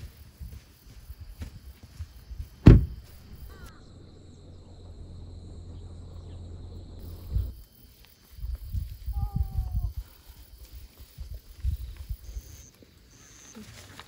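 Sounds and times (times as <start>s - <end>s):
insects chirring: 0.0s - 14.0s
low thump: 2.6s - 3.7s.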